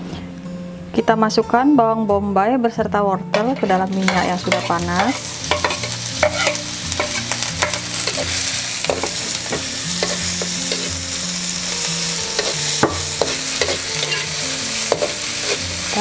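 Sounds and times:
spatula scraping and clicking on wok: 0:03.4 - 0:11.0, 0:12.3 - 0:15.9
vegetables sizzling in hot oil: 0:03.4 - 0:16.0.

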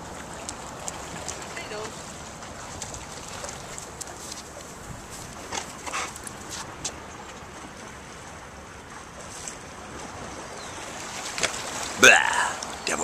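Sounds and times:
wind across microphone: 0:00.0 - 0:06.9
water lapping on shore: 0:00.0 - 0:13.0.

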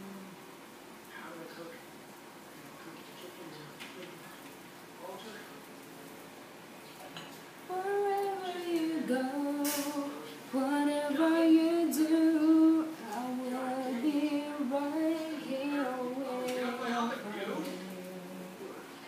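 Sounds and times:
woman singing unaccompanied: 0:07.7 - 0:19.0.

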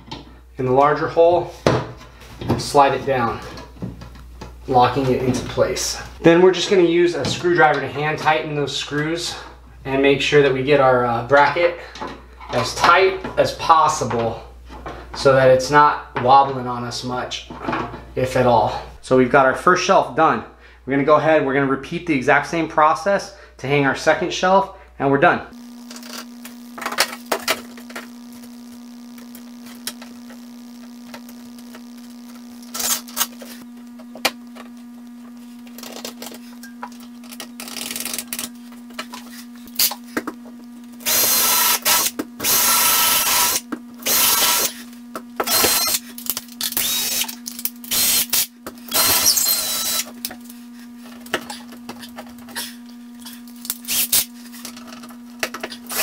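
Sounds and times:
steady low hum: 0:00.0 - 0:56.0
cordless drill running: 0:32.6 - 0:33.2, 0:41.0 - 0:44.8, 0:45.4 - 0:50.2, 0:53.8 - 0:54.3.

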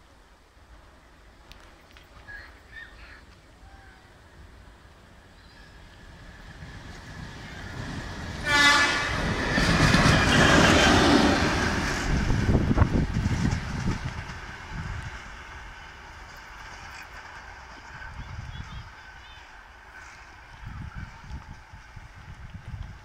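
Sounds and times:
locomotive engine rumbling: 0:00.1 - 0:23.0
locomotive horn blast: 0:08.4 - 0:10.7.

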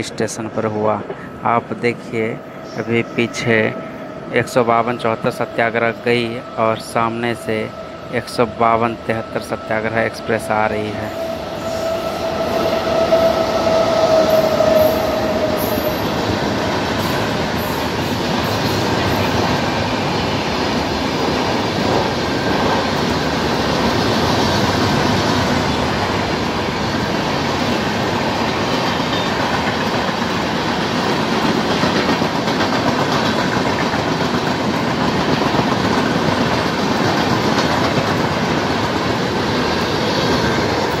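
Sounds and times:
train running past: 0:00.0 - 0:41.0
high steady tone: 0:02.8 - 0:17.9.

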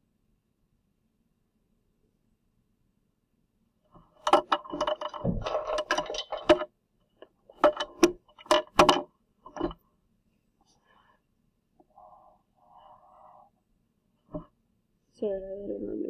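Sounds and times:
plastic objects clattering on desk: 0:04.0 - 0:09.8.

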